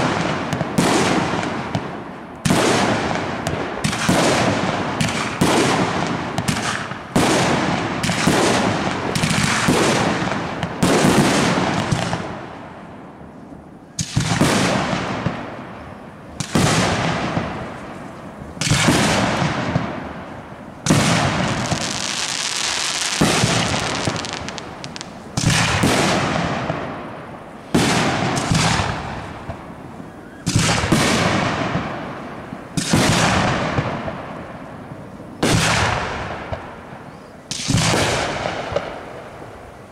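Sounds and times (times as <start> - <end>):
high hiss: 20.2 - 25.6
firework shells bursting: 20.6 - 26.9.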